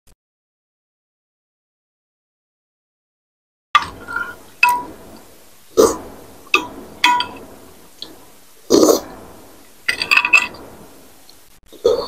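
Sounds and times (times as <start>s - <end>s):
cutlery clinking on glass dish: 9.9s - 10.6s.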